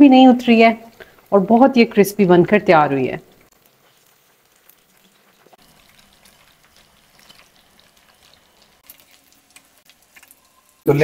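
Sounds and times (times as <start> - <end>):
fish sizzling in frying pan: 0.0 - 11.0.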